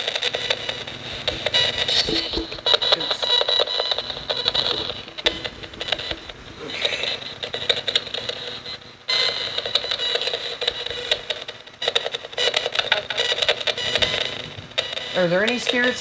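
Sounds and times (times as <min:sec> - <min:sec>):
choppy radio static: 0:00.0 - 0:08.8
clipped radio tones: 0:00.3 - 0:08.8.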